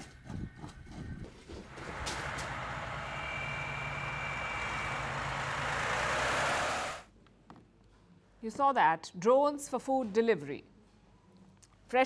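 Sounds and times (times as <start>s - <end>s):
rushing whirring noise: 1.7s - 7.1s.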